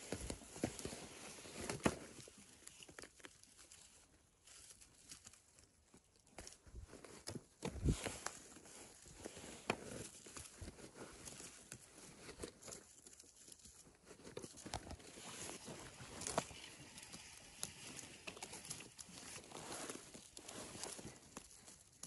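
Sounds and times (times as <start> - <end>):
rustling leaves and moss: 0.0 - 22.0.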